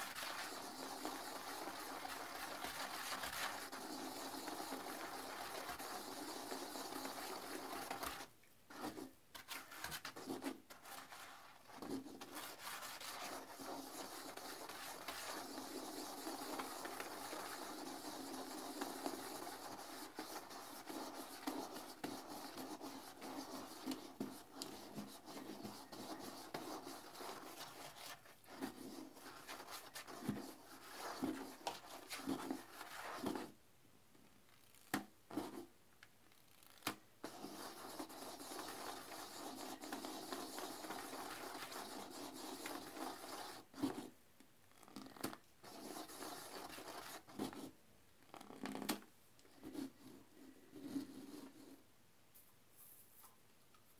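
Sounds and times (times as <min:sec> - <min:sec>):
toilet brush scrubbing bowl: 0:00.0 - 0:33.4, 0:37.2 - 0:44.0, 0:45.7 - 0:47.5.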